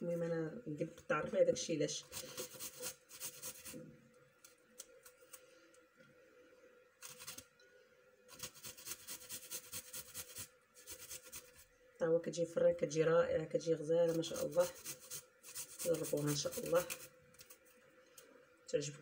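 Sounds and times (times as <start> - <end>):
garlic grated on metal grater: 2.0 - 3.8, 8.3 - 11.6, 14.1 - 17.1.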